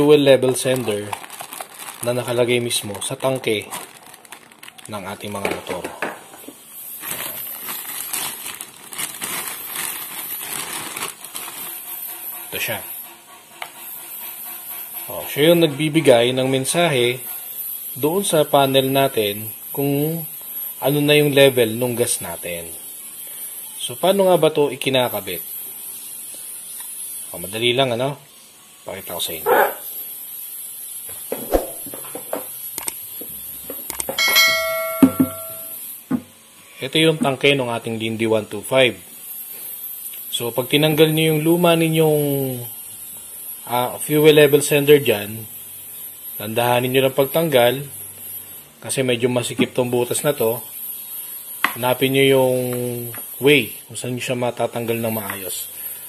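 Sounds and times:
plastic bag crinkling: 0:00.0 - 0:05.9, 0:07.0 - 0:11.8.

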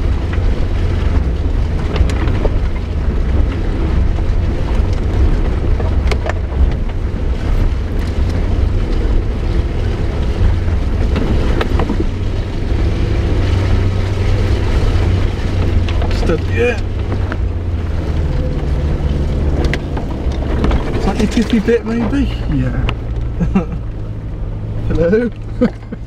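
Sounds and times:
low engine and road drone: 0:00.0 - 0:26.0.

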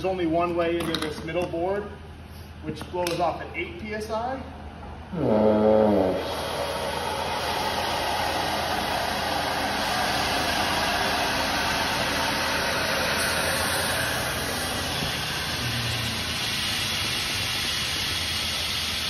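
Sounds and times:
compressed air hissing through hose: 0:06.0 - 0:19.0.

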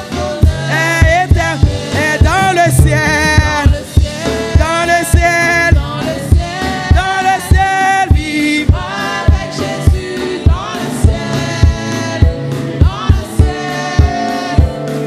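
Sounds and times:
band accompaniment: 0:00.0 - 0:15.0
steady drum beat: 0:00.0 - 0:15.0
woman singing lead: 0:00.0 - 0:15.0
women singing backing parts: 0:00.0 - 0:15.0.

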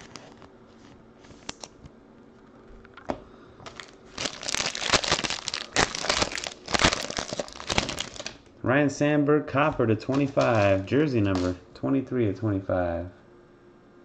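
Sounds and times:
foil wrapper tearing and crinkling: 0:03.7 - 0:08.5, 0:10.1 - 0:11.5.

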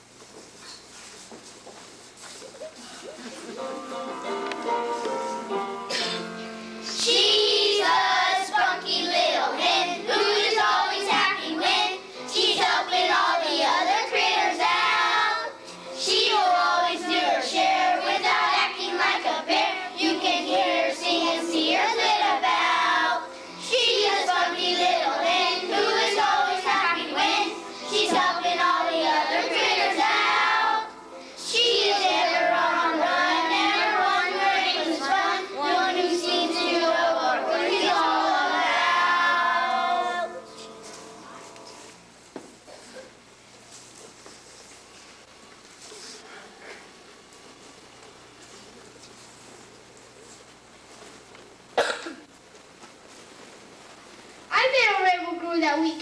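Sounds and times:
children singing together: 0:06.9 - 0:40.6.

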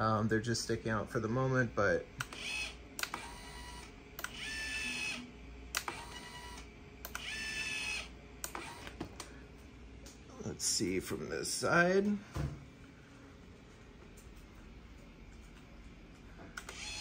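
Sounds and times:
motors whining: 0:02.2 - 0:09.0, 0:16.6 - 0:17.0.

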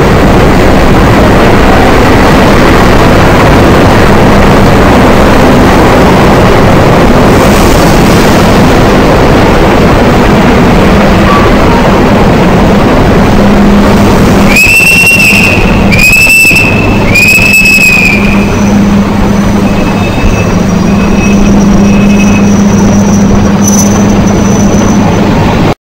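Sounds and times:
train rumble and hum: 0:00.0 - 0:25.8
shrill whistle blasts: 0:14.5 - 0:19.0, 0:19.6 - 0:25.0.

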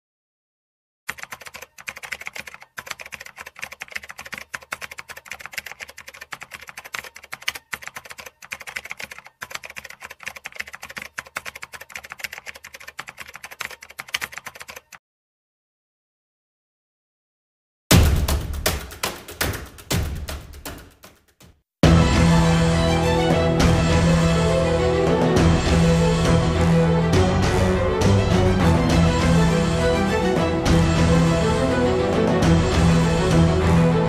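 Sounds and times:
rapid keyboard typing clicks: 0:01.1 - 0:15.0, 0:18.1 - 0:21.6.

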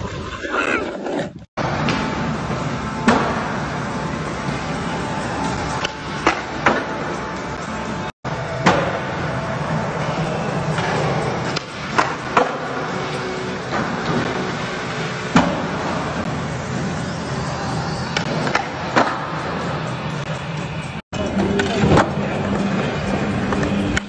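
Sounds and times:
skateboard wheels rolling on concrete: 0:00.0 - 0:24.0
skateboard clacks: 0:21.3 - 0:24.0.

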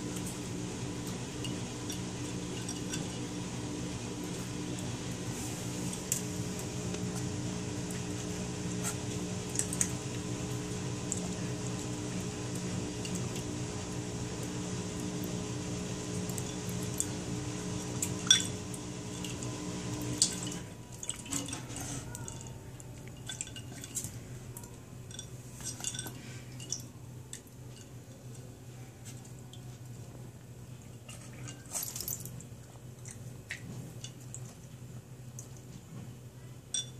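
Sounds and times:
ice clinking in water bowl: 0:01.4 - 0:03.3, 0:18.0 - 0:19.4, 0:20.1 - 0:28.0.

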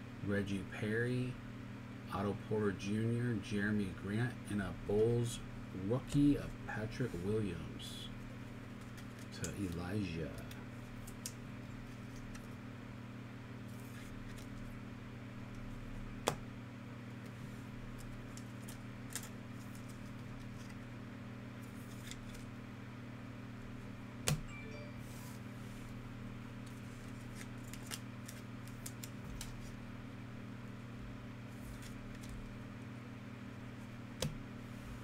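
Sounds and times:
steady low hum: 0:00.0 - 0:35.0
cards sliding rustles: 0:08.7 - 0:12.6, 0:13.7 - 0:14.8, 0:17.1 - 0:20.9, 0:21.6 - 0:22.5, 0:26.6 - 0:29.8, 0:31.5 - 0:32.5.

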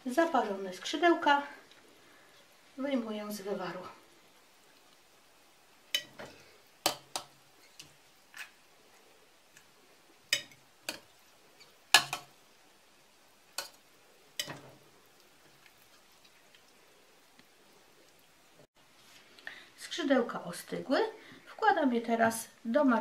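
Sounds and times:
metal utensils clinking on pot: 0:05.9 - 0:08.5, 0:10.3 - 0:11.1, 0:11.9 - 0:12.3, 0:14.4 - 0:14.7.

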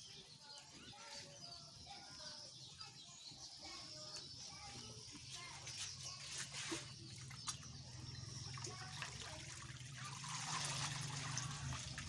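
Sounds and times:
water splashing and trickling: 0:05.1 - 0:12.0.

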